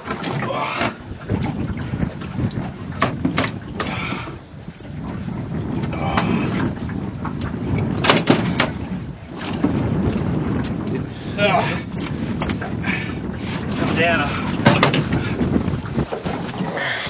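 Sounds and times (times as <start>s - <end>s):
boat rumble: 0.0s - 17.0s
wind buffeting microphone: 0.0s - 17.0s
knocks and clatter on deck: 2.6s - 4.0s, 8.0s - 8.8s, 14.6s - 15.3s.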